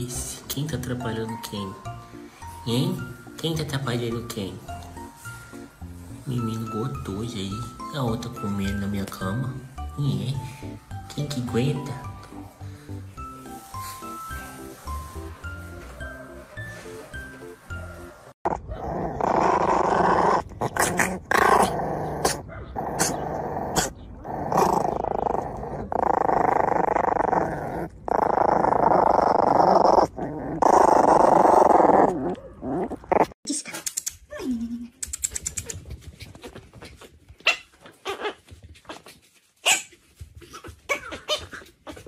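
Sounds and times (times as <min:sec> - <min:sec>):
puppies growling: 0:12.2 - 0:33.4.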